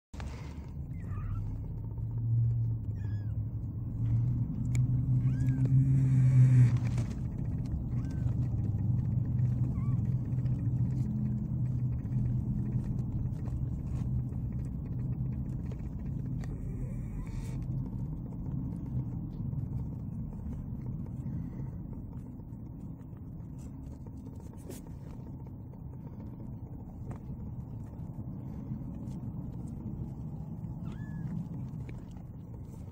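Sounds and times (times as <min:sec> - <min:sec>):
kittens mewing: 0:00.2 - 0:32.9
kittens purring: 0:00.2 - 0:32.9.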